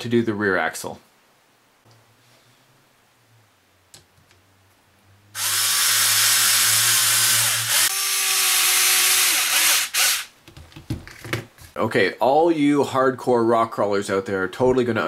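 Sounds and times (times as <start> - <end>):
cordless drill whirring: 5.4 - 10.3.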